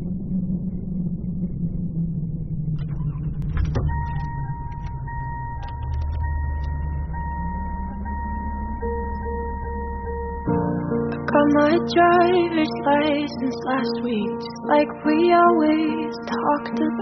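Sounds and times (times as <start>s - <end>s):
car engine idling: 0.0s - 12.7s
clicks: 2.8s - 10.6s
car warning chime dinging: 3.9s - 10.9s.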